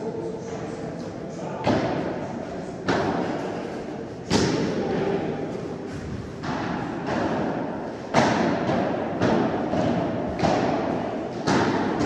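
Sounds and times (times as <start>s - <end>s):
padel ball hit with rackets: 6.4s - 12.0s.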